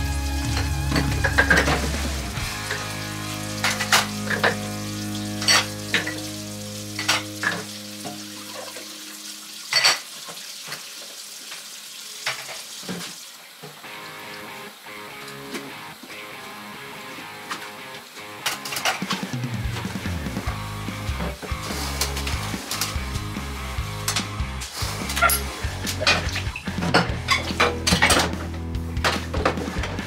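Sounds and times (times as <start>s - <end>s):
kitchenware clinking: 0.5s - 2.0s, 3.6s - 4.7s, 5.3s - 6.3s, 6.9s - 8.9s, 9.7s - 10.1s, 25.1s - 29.7s.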